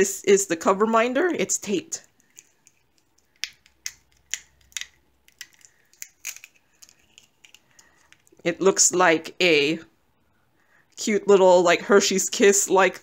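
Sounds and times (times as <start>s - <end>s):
plastic packaging crinkling: 2.1s - 8.4s.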